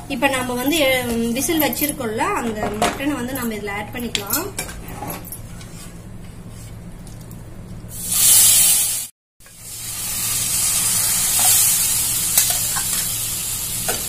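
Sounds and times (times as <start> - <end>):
oil sizzling in a pan: 7.9 - 14.0
loud hiss of meat hitting hot oil: 8.0 - 14.0.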